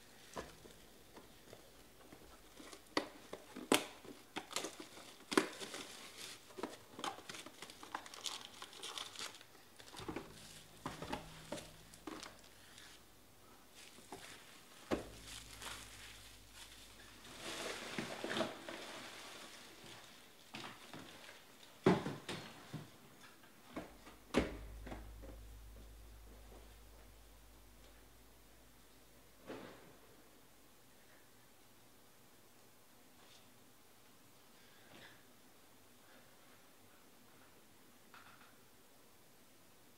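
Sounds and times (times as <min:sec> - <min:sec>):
plastic wrapping crinkling: 0:00.2 - 0:13.1, 0:13.7 - 0:21.7.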